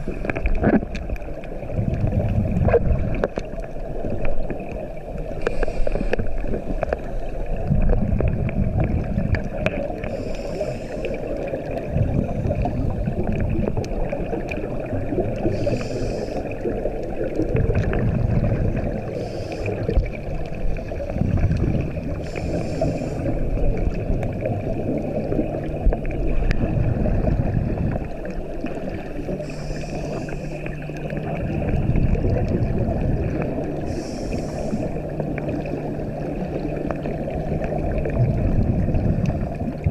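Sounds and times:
exhaled bubbles rumbling: 0:00.0 - 0:39.9
steady background hum: 0:00.0 - 0:39.9
regulator inhale hiss: 0:05.4 - 0:06.6, 0:10.0 - 0:11.5, 0:15.4 - 0:16.8, 0:19.0 - 0:20.1, 0:22.1 - 0:23.6, 0:29.3 - 0:30.8, 0:33.8 - 0:35.2.

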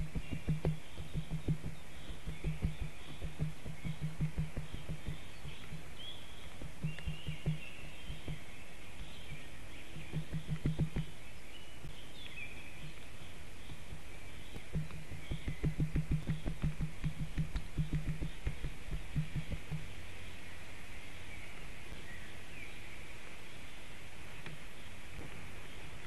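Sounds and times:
low thumps and knocks: 0:00.0 - 0:11.2, 0:13.6 - 0:20.0
songbirds chirping: 0:00.0 - 0:26.0.

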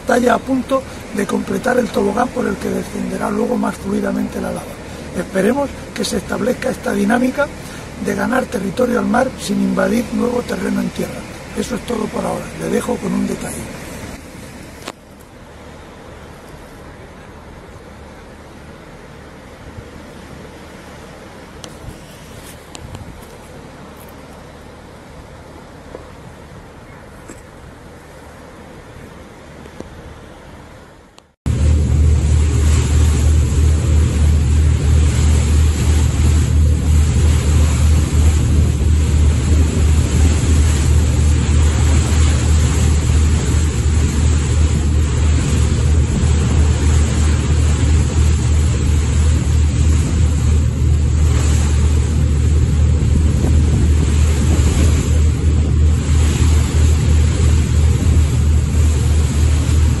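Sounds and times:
boat engine drone: 0:00.0 - 1:00.0
wind on microphone: 0:21.6 - 0:23.7, 0:31.5 - 1:00.0.

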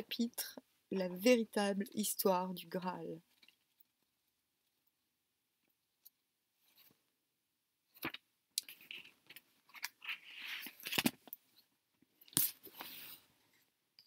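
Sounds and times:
paper and book cover rustling: 0:07.9 - 0:13.7.

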